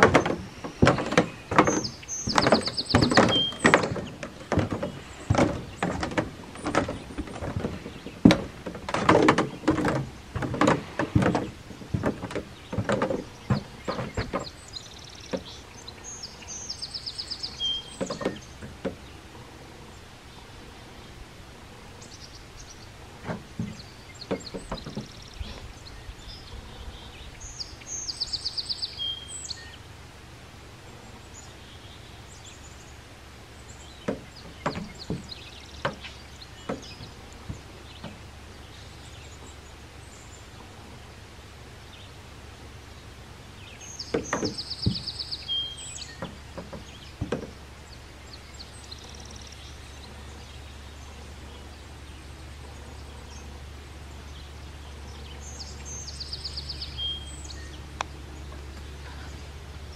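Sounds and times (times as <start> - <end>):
songbird trilling: 0.0 - 8.2, 12.3 - 19.2, 23.5 - 29.8, 43.6 - 59.6
fishing gear knocking on boat hull: 0.0 - 14.5.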